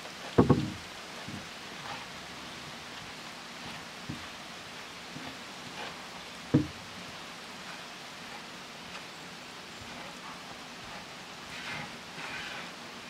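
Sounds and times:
steady outdoor hiss: 0.0 - 13.0
deep thump: 0.4 - 0.8, 6.5 - 6.7.

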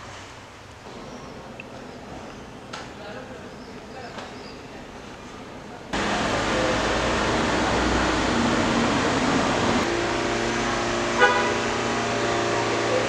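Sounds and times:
street traffic rush: 0.0 - 13.0
vehicle engine hum: 6.0 - 13.0
car horn toot: 10.9 - 12.0.

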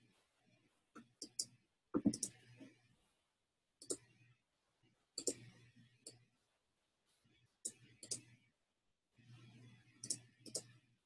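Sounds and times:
computer mouse clicking: 1.0 - 2.4, 3.8 - 4.1, 5.2 - 6.2, 7.6 - 8.3, 10.0 - 10.7.

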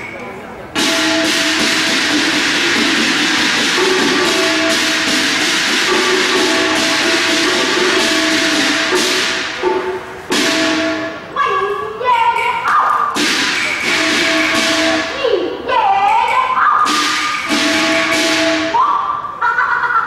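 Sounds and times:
cymbals and gongs: 0.0 - 19.4
held tone: 13.3 - 15.2.

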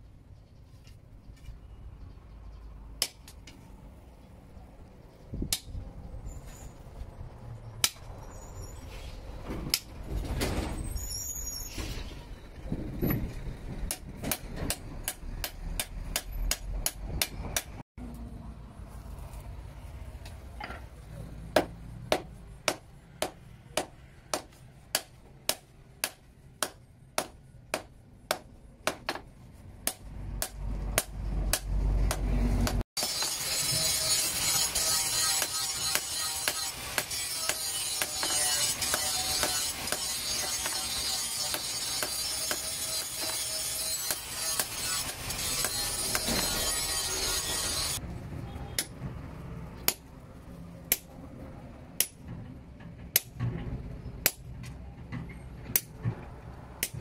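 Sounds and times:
hammer striking hot steel on anvil: 29.8 - 48.0, 52.0 - 52.2.

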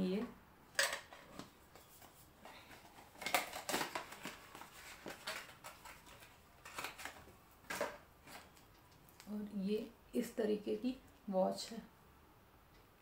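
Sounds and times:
clicks taps and rustles of packaging: 0.8 - 9.3.

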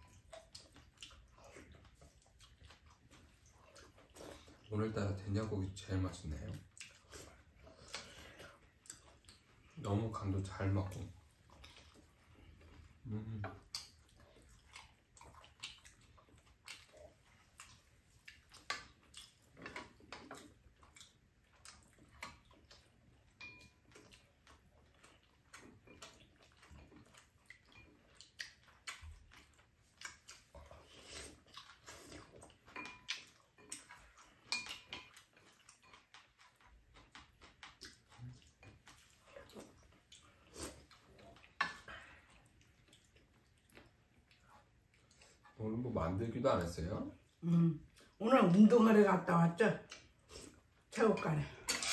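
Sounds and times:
utensils clinking on bowls: 51.1 - 51.9.

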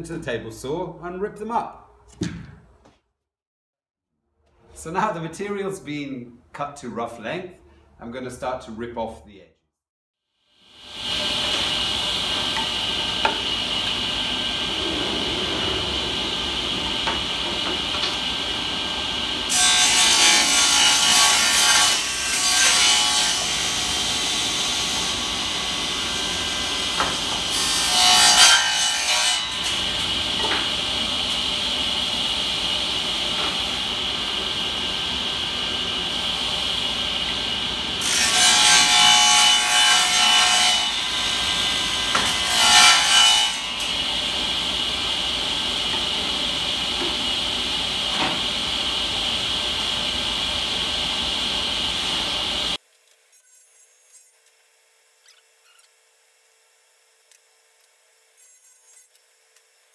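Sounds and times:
table saw whining: 10.7 - 52.8
saw blade cutting wood: 10.8 - 52.8.

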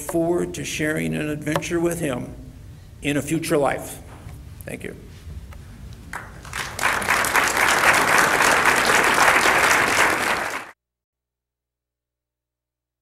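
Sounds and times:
audience applauding: 6.1 - 10.8.

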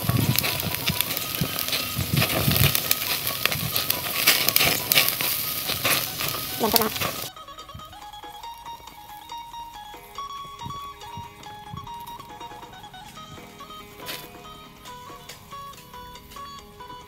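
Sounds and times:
meat sizzling on a grill: 0.0 - 7.3, 9.0 - 16.5
metal tongs clicking: 0.1 - 7.2.

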